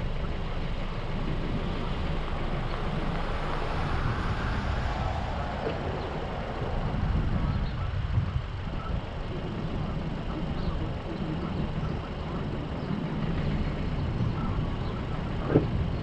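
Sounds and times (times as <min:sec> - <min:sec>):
road traffic rumble: 0:00.0 - 0:16.0
vehicle passing: 0:01.2 - 0:09.0.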